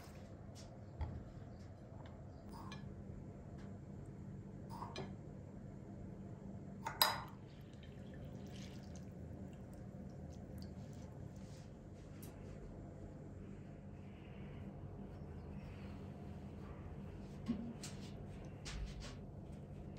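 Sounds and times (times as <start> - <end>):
faint low hum: 0.0 - 19.9
water splashing in a bowl of rice: 7.4 - 11.4.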